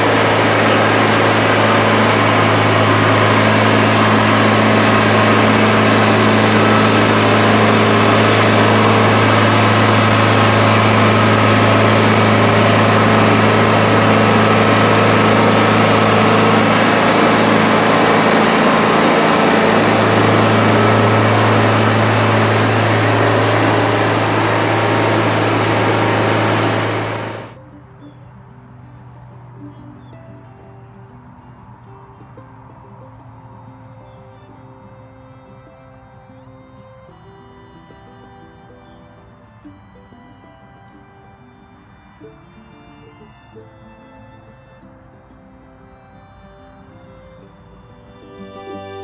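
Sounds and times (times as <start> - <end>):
band sawmill cutting log: 0.0 - 27.6.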